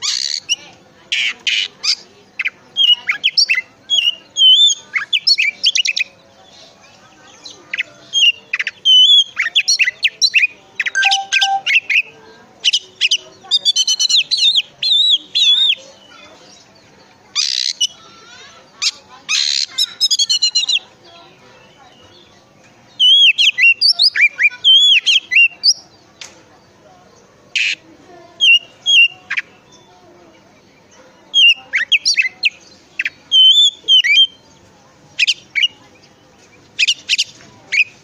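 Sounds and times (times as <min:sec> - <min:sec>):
bird singing whistled phrases: 0:10.9 - 0:11.8.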